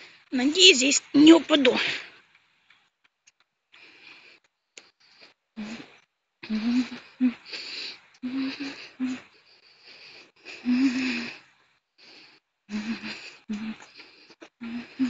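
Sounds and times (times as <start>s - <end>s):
woman breathing: 0.0s - 0.3s, 3.7s - 15.0s.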